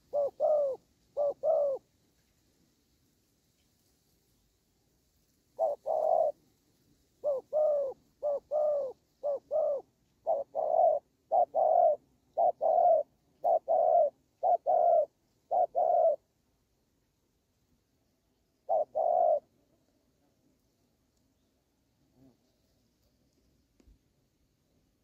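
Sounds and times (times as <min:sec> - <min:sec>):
dove cooing: 0:00.0 - 0:01.9, 0:05.6 - 0:06.4, 0:07.2 - 0:16.3, 0:18.6 - 0:19.6.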